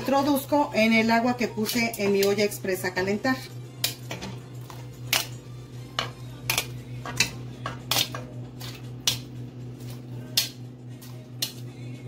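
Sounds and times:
steady low hum: 0.0s - 12.0s
metal tongs clinking on pot: 6.0s - 9.3s.

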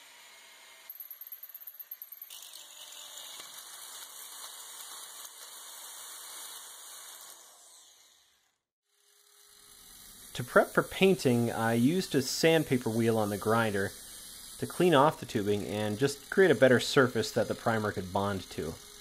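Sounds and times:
power drill boring through steel: 1.7s - 19.0s.

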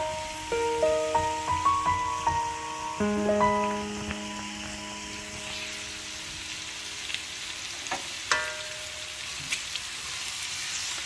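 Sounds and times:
meat sizzling in a wok: 0.0s - 11.0s
wooden spatula knocking on wok: 7.9s - 9.2s.

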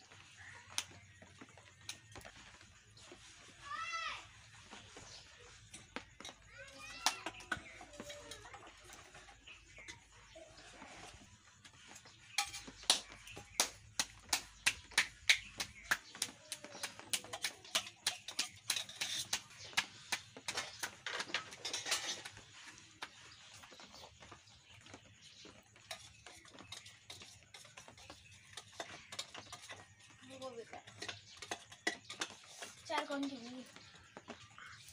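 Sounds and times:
hands slapping dough: 12.7s - 21.0s.

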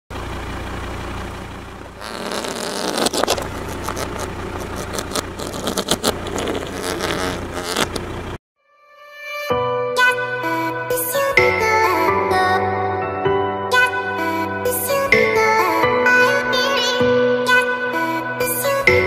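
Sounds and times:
car engine humming: 0.1s - 8.4s
loud crunching and sharp pops: 2.0s - 8.1s.

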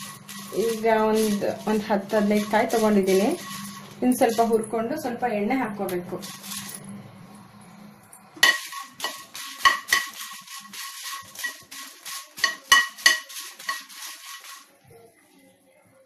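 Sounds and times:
spatula scraping a pan: 0.0s - 4.5s, 8.4s - 14.7s.

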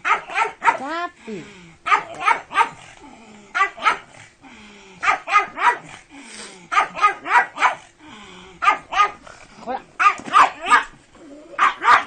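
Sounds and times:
dog barking: 0.0s - 0.9s, 1.9s - 2.8s, 3.6s - 4.1s, 5.0s - 5.9s, 6.7s - 7.9s, 8.6s - 9.2s, 10.0s - 10.9s, 11.6s - 12.0s.

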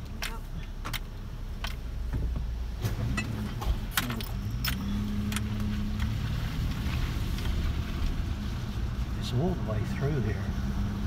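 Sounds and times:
car engine hum: 0.0s - 11.0s
sharp clicks and jingling rattles: 3.1s - 6.2s.

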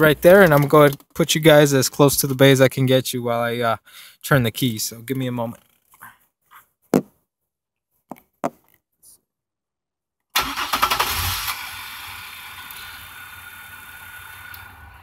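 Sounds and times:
car engine starting and idling: 10.4s - 15.0s.

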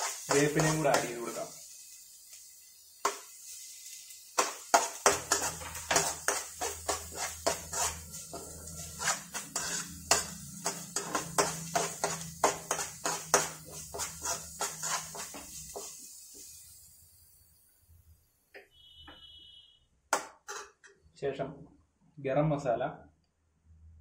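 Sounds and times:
spoon scraping frying pan: 0.0s - 1.6s, 2.3s - 16.6s.

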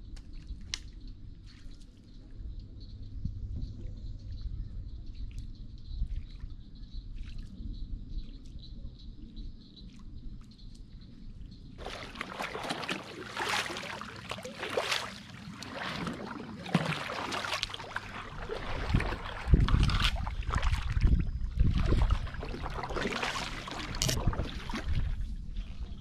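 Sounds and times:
paddle splashing in water: 11.8s - 26.0s.

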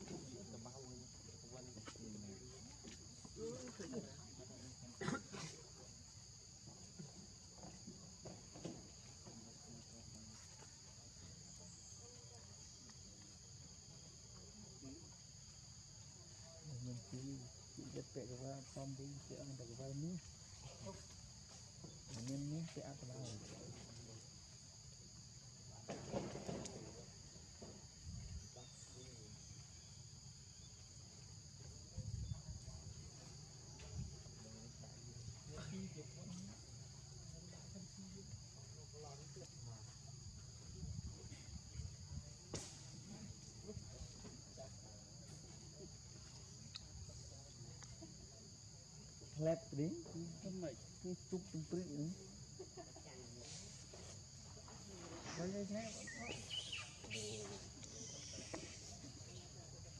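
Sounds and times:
insect chorus drone: 0.0s - 59.9s
high-pitched insect drone: 55.2s - 59.8s.

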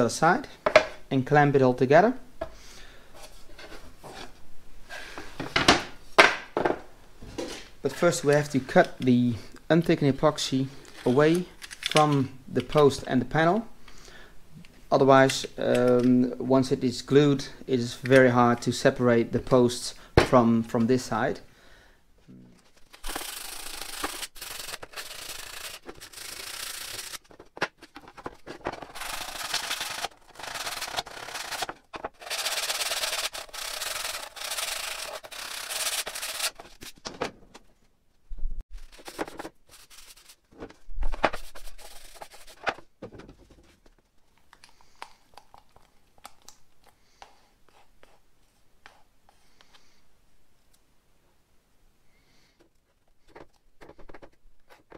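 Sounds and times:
knocks of wood pieces handled: 27.1s - 33.2s, 38.8s - 44.1s, 52.6s - 54.9s
hand sanding wood panel: 29.0s - 36.6s
rustling: 38.7s - 44.8s.

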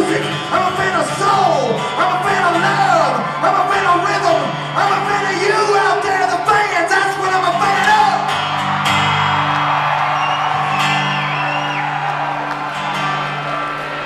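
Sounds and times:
acoustic guitars strumming: 0.0s - 14.0s
audience member whooping: 8.5s - 14.0s.

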